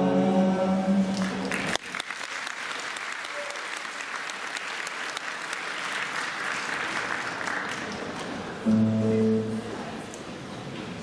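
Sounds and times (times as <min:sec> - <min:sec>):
audience applauding: 0:01.1 - 0:08.6
loud low pitched tone: 0:08.7 - 0:09.8.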